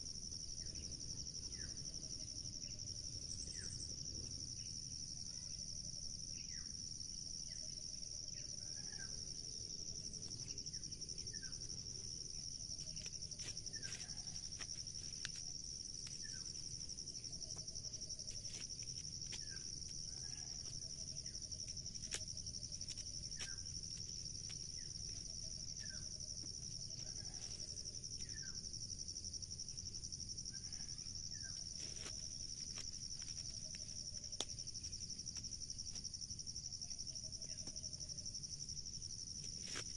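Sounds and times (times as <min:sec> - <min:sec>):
insects droning: 0:00.0 - 0:39.9
corn husks rustling: 0:12.8 - 0:16.7, 0:21.8 - 0:25.2, 0:31.7 - 0:33.9.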